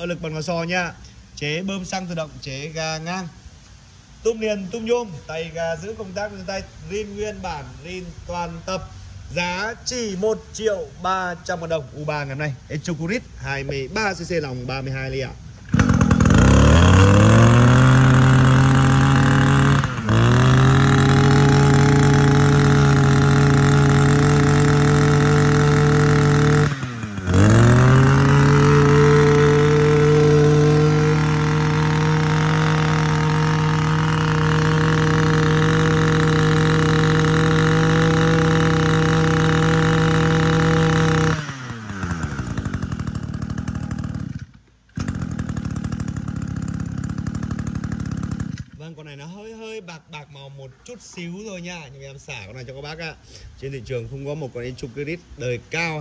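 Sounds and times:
brush cutter engine revving: 15.2s - 49.4s.

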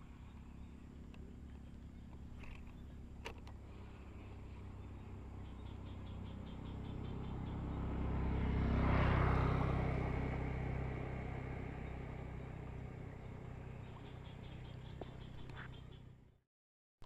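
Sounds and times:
vehicle engine passing by: 3.6s - 16.2s.

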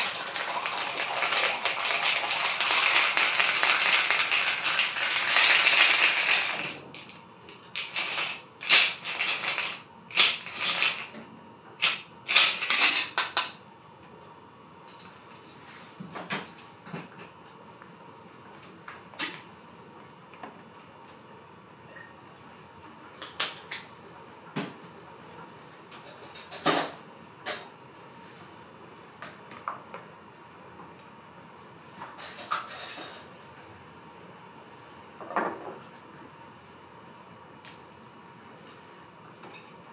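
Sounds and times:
cocktail pouring into a mug: 0.0s - 6.6s.

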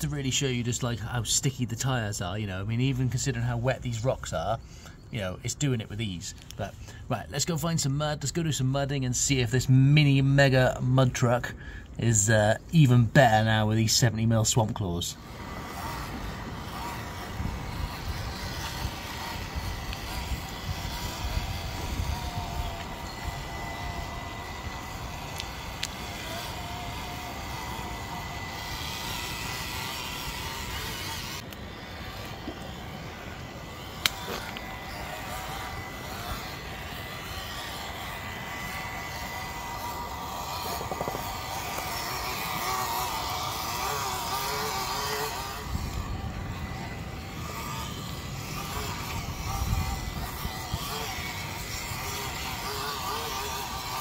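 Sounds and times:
small electric motor whine: 14.7s - 54.0s
tyres churning in mud: 14.8s - 54.0s.

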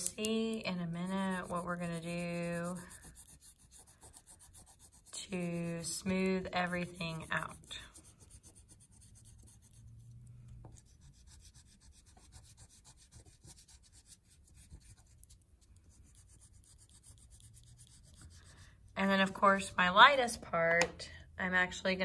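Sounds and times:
oil pastel rubbing on paper: 0.2s - 19.4s.

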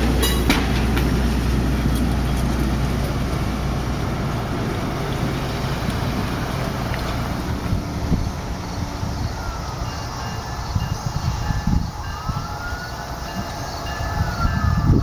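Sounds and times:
wheels thumping over rail joints: 0.0s - 8.2s
train cars rumbling: 0.0s - 15.0s.

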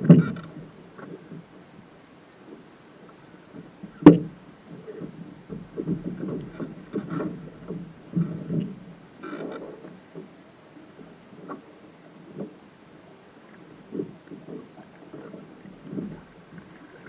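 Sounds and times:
thumps and clunks through hull: 0.0s - 1.8s, 3.4s - 12.7s, 13.5s - 17.0s
knock on boat hull: 3.8s - 4.4s.

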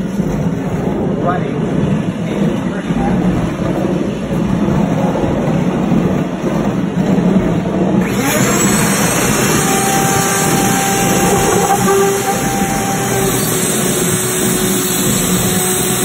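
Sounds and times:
motor and rollers running: 0.0s - 16.0s
router whining cutting foam: 8.0s - 16.0s.

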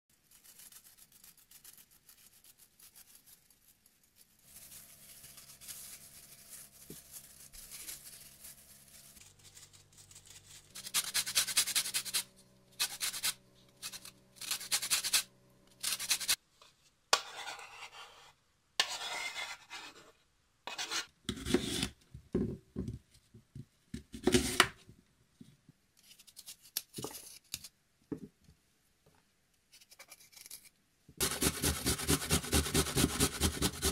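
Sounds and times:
lemon grated on metal grater: 0.1s - 3.7s, 4.4s - 16.4s, 31.2s - 33.9s
knife cutting on wooden board: 20.7s - 21.9s.

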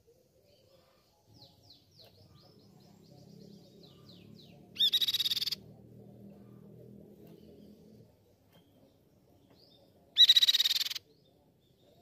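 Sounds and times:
bird whistled notes: 10.2s - 11.0s.

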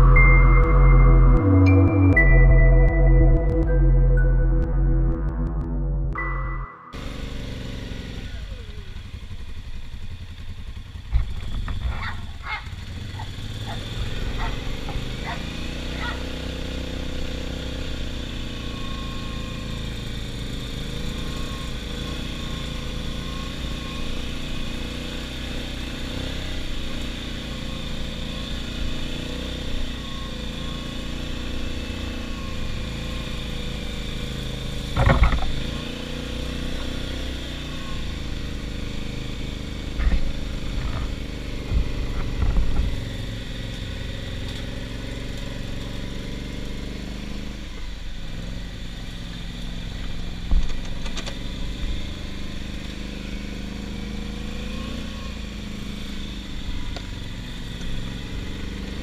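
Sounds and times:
atv engine running: 7.0s - 59.0s
loud thumps: 35.0s - 35.6s.

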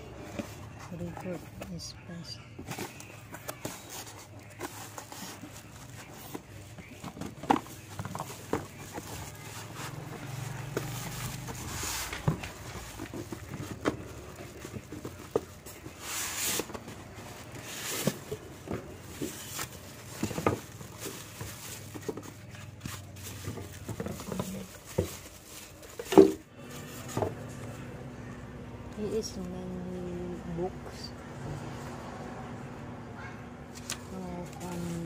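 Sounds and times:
foam and cardboard scraping: 2.6s - 27.3s
plastic wrapping crinkling: 2.7s - 27.3s.

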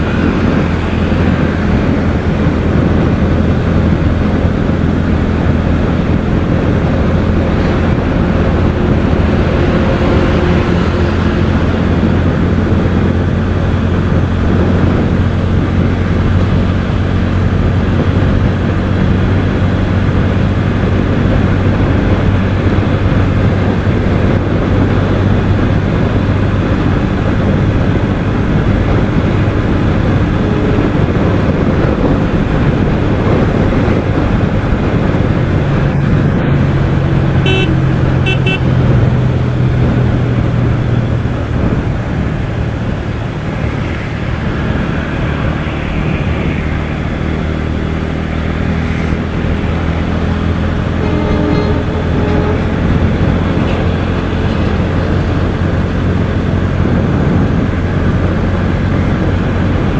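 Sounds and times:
motorcycle engine running: 0.0s - 59.9s
wind and road rush: 0.0s - 59.9s
high-pitched horn toots: 37.4s - 38.8s, 50.9s - 54.7s.

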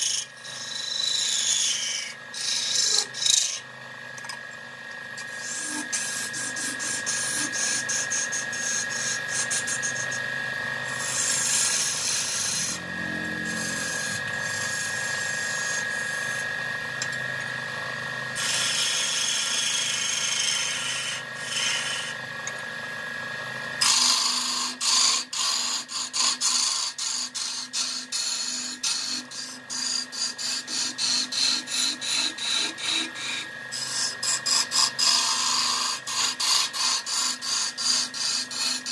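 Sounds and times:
tool scraping spinning wood: 0.0s - 23.0s, 23.7s - 38.9s
wood lathe whining: 0.0s - 38.9s.

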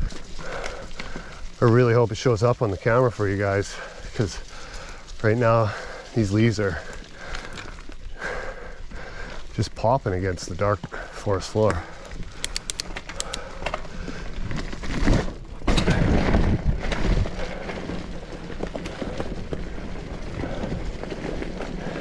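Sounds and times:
bike tyres rolling on dirt: 0.0s - 22.0s
rattling clicks from bike: 3.6s - 9.4s, 10.9s - 14.8s.

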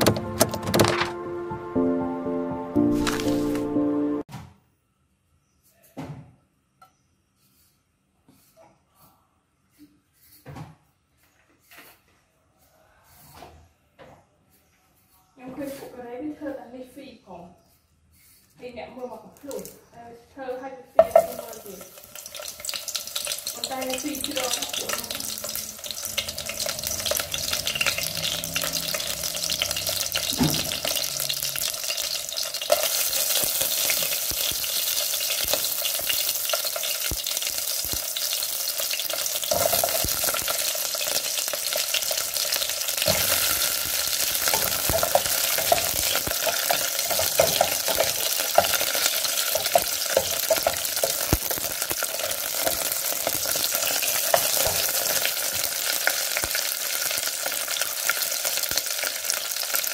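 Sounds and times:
sizzling in a pot: 17.6s - 19.9s, 20.9s - 59.9s
ingredients dropping into pot: 43.0s - 55.5s.

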